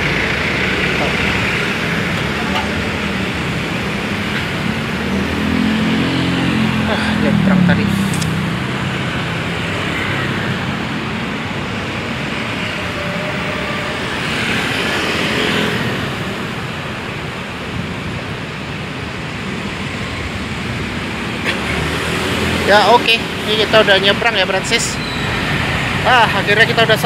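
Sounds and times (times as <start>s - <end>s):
motorcycle passing: 0.0s - 16.7s
road traffic passing: 0.0s - 27.0s.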